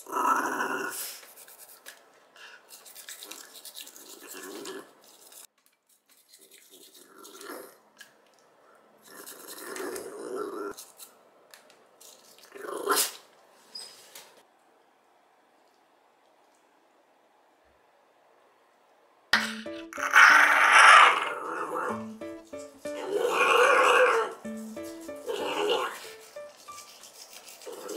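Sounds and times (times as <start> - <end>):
dog growling: 0.0 - 1.0, 9.2 - 10.8
toothbrush scrubbing teeth: 1.1 - 7.8, 9.0 - 10.1, 24.4 - 27.9.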